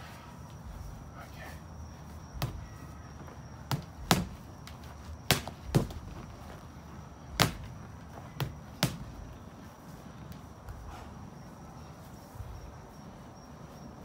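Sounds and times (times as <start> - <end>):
gloves punching heavy bag: 3.6 - 6.3, 7.4 - 9.3.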